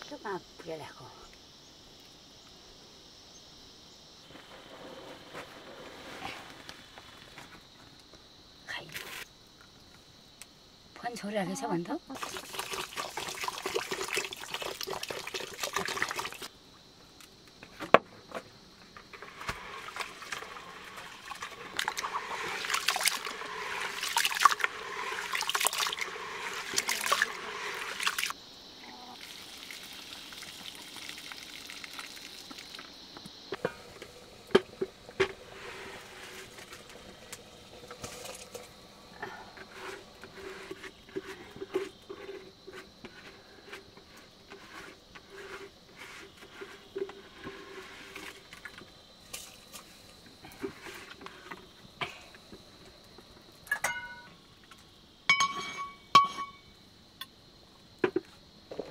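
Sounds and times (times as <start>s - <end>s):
water pouring into plastic bucket: 12.2s - 16.5s, 19.2s - 28.3s, 29.2s - 32.9s, 33.7s - 38.8s.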